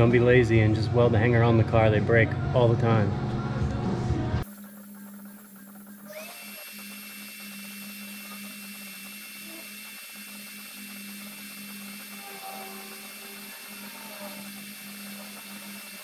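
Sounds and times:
high whine: 4.4s - 16.0s
low hum: 4.4s - 16.0s
welding arc hissing: 4.4s - 16.0s.

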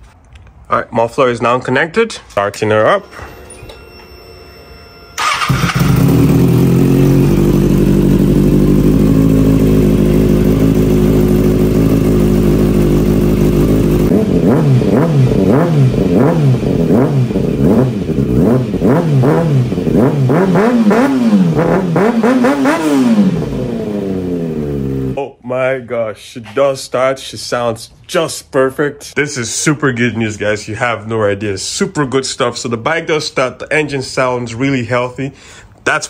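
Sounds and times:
motorcycle engine revving: 5.2s - 25.2s.

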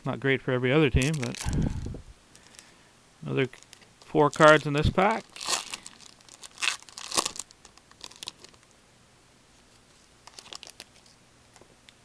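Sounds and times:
trading card wrapper crinkling: 1.0s - 2.7s, 3.4s - 8.7s, 9.7s - 11.2s.

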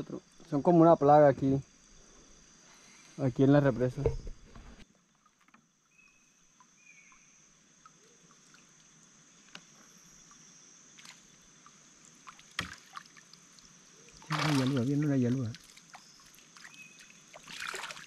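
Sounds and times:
high insect buzz: 0.0s - 18.0s
water dripping: 6.5s - 10.5s, 11.3s - 18.0s.

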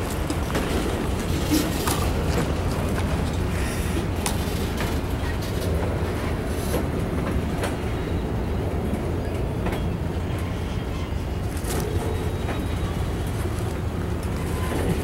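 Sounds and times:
wheels clicking and clacking: 0.0s - 5.9s
freight train wheels rumbling: 0.0s - 15.0s.

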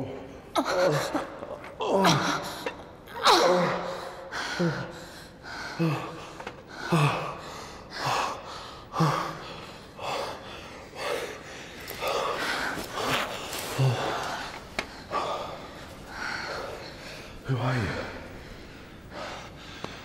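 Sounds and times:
person gasping and moaning: 0.5s - 9.6s, 11.9s - 15.6s.

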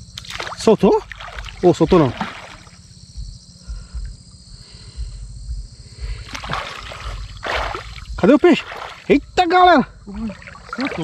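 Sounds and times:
river water trickling: 0.0s - 3.0s, 6.2s - 11.0s
low uneven rumble: 0.0s - 11.0s.

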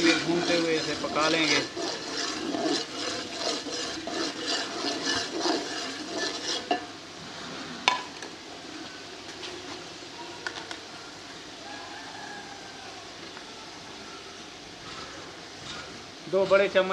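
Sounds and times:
ladle stirring and scraping pot: 0.0s - 7.0s.

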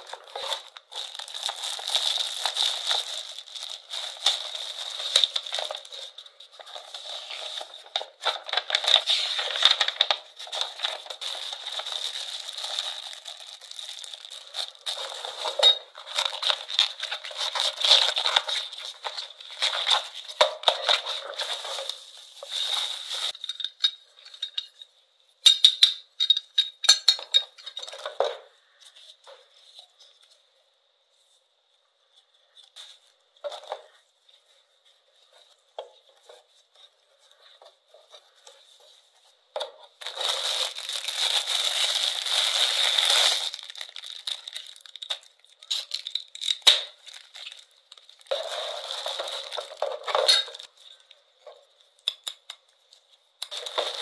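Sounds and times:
plastic packaging crinkling: 0.0s - 23.5s, 39.9s - 51.2s, 52.9s - 54.0s.

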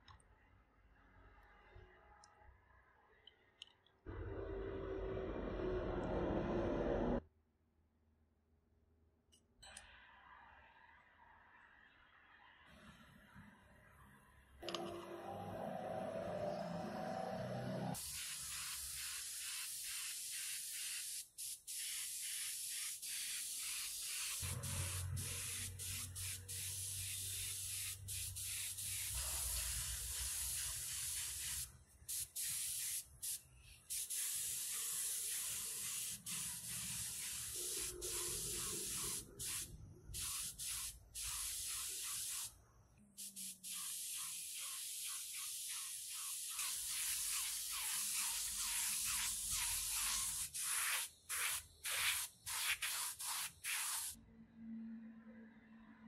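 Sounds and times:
spray gun hissing: 18.0s - 42.5s, 43.2s - 54.2s.

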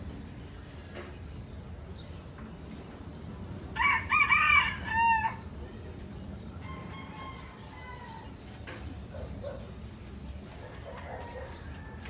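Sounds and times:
rooster crowing: 3.8s - 5.4s, 6.6s - 8.3s.

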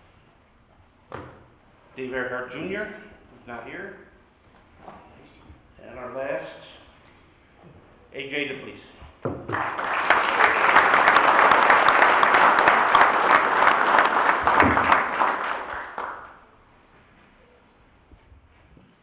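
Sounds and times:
audience applauding: 9.5s - 16.5s.

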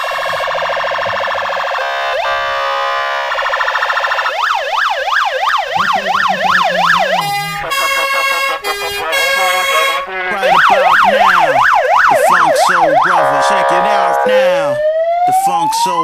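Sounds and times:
fire engine siren: 0.0s - 16.0s.

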